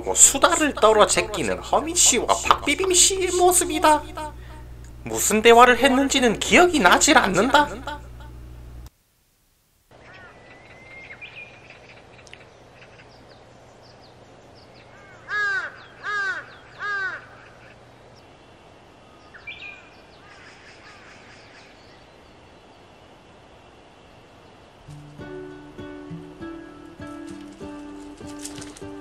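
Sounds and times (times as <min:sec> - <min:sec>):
crow cawing: 0:09.9 - 0:10.9, 0:14.9 - 0:17.9, 0:19.8 - 0:21.8
small birds chirping: 0:09.9 - 0:29.0.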